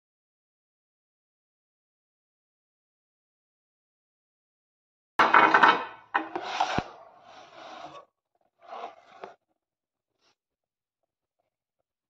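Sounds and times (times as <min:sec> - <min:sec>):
cardboard scraping on surface: 0:06.2 - 0:09.4.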